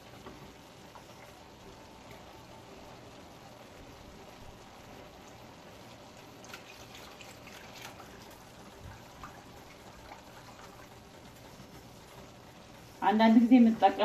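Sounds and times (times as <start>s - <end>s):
whisk sloshing in milk: 6.2s - 11.9s.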